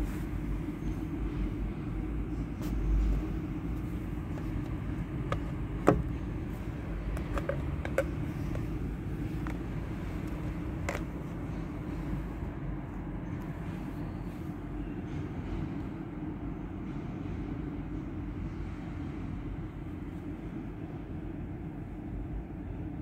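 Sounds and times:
low background rumble: 0:00.0 - 0:23.0
plastic clicks and knocks on glass: 0:05.3 - 0:06.2, 0:07.1 - 0:08.7.

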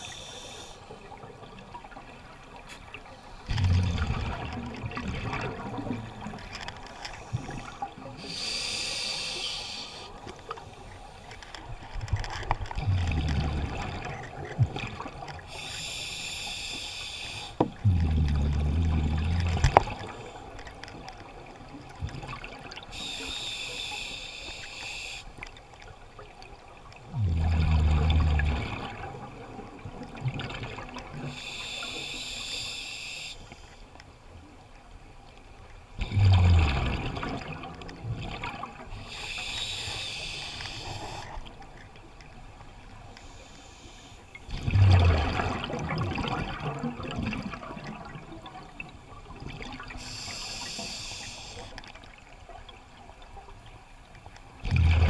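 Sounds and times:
hissing regulator inhalation: 0:08.2 - 0:10.1, 0:15.5 - 0:17.6, 0:23.0 - 0:25.3, 0:31.3 - 0:33.6, 0:39.0 - 0:41.4, 0:50.0 - 0:51.8
low bubbling exhalation: 0:36.0 - 0:37.5, 0:54.6 - 0:55.0.

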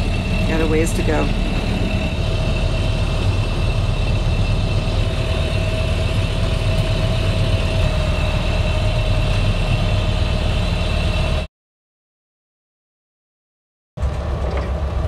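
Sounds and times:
boat engine droning: 0:00.0 - 0:11.5, 0:14.0 - 0:15.0
thin steady whine: 0:00.0 - 0:11.5.

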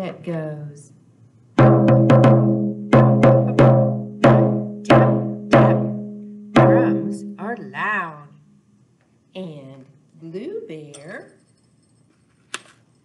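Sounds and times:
frame drum struck with mallet: 0:01.6 - 0:07.6.

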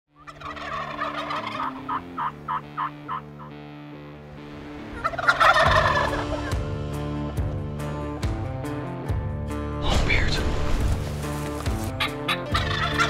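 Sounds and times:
turkeys gobbling: 0:00.2 - 0:03.6, 0:04.9 - 0:06.6, 0:11.8 - 0:13.0.

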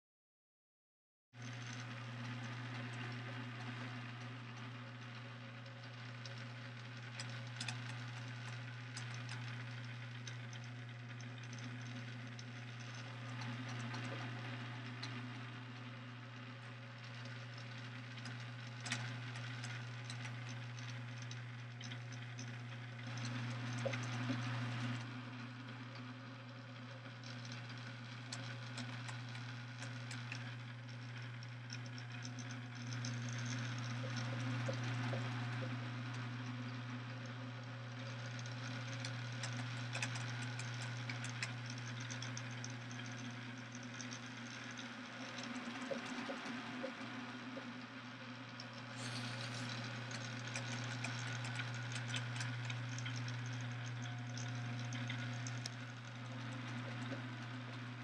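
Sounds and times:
small electric motor hum: 0:01.4 - 0:58.0
mechanism clicking and rattling: 0:38.4 - 0:46.4.

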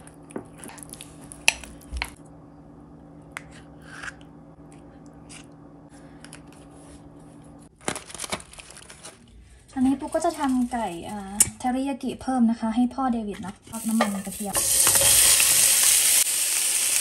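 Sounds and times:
steady low hum: 0:00.0 - 0:07.8
utensils clicking against dishes: 0:13.7 - 0:15.5.

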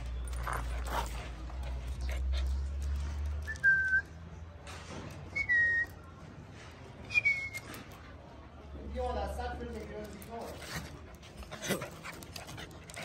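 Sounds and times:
person whistling short notes: 0:03.5 - 0:04.1, 0:05.4 - 0:06.0, 0:07.1 - 0:07.8.

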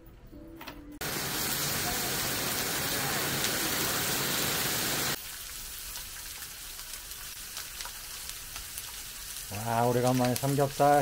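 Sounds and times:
heavy rain: 0:01.0 - 0:05.2
pork sizzling on a grill pan: 0:01.0 - 0:11.0.

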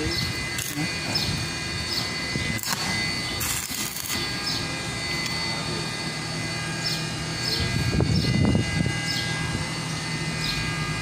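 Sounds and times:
high whining tones: 0:00.0 - 0:11.0
machine drone: 0:00.0 - 0:11.0.

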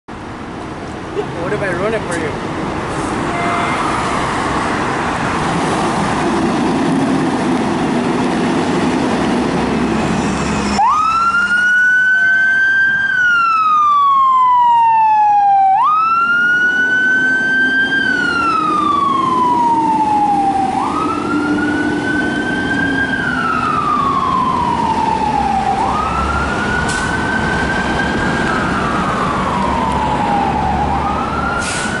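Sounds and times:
street noise: 0:00.1 - 0:32.0
truck engine: 0:00.1 - 0:32.0
fire engine siren wailing: 0:10.0 - 0:32.0.

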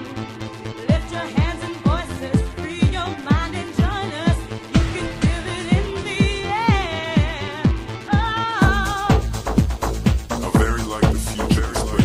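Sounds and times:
wavering lead melody: 0:00.0 - 0:09.1
dance-pop music: 0:00.0 - 0:12.0
kick drum: 0:01.9 - 0:12.0.

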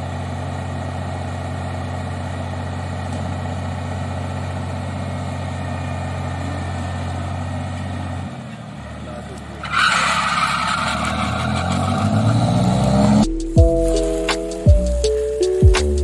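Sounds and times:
combine harvester engine drone: 0:00.0 - 0:09.6
threshing and straw-chopping hum: 0:02.5 - 0:04.6.

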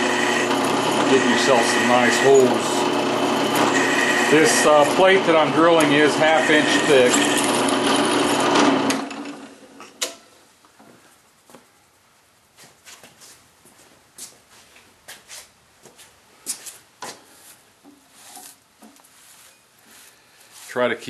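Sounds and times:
drill press running: 0:00.0 - 0:09.8.

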